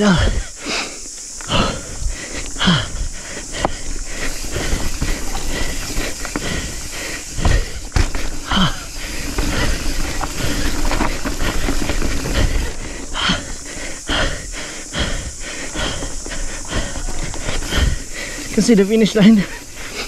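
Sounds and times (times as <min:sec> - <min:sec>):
bike tyres on dirt: 0:00.0 - 0:20.0
person breathing hard: 0:00.0 - 0:20.0
bike knocking and clattering: 0:02.7 - 0:14.3.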